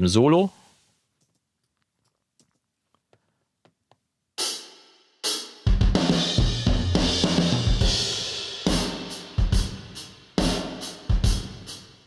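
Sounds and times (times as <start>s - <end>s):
drum kit with room reverb: 4.4s - 12.0s.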